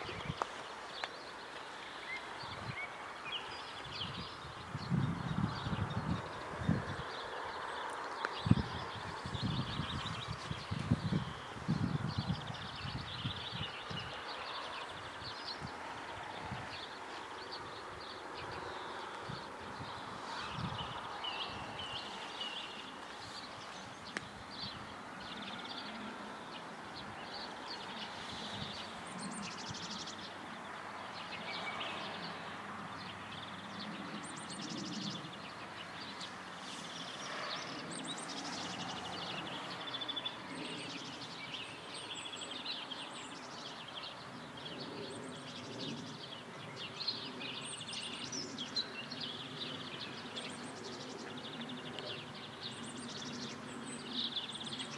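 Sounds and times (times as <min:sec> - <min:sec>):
faint outdoor background: 0:00.0 - 0:54.9
songbirds chirping and trilling: 0:00.0 - 0:54.9.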